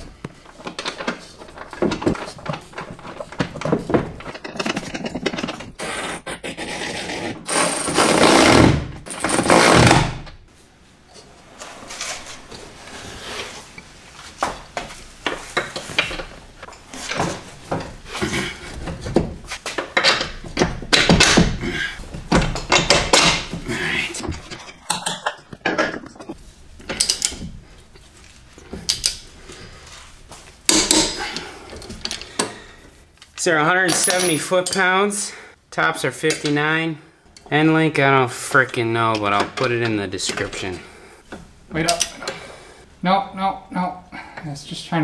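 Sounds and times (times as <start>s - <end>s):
metal tools clinking and knocking: 33.8s - 35.0s.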